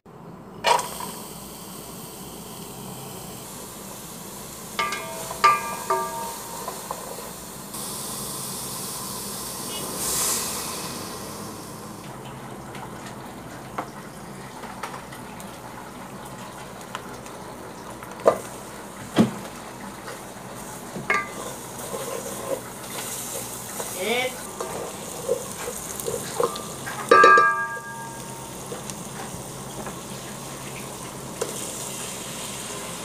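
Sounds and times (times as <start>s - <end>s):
onions sizzling in hot oil: 0.6s - 33.0s
spatula knocking against pot: 4.8s - 6.9s, 26.4s - 28.3s.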